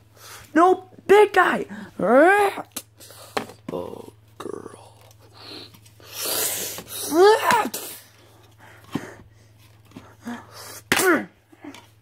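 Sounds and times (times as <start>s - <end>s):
child hissing mouth effect: 5.4s - 8.1s
child crying out: 7.0s - 7.8s.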